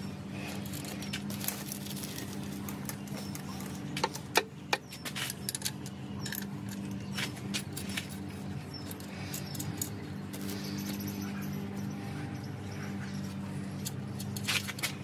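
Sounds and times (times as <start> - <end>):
steady low hum: 0.0 - 15.0
wrench clinking on metal nuts: 4.8 - 12.0.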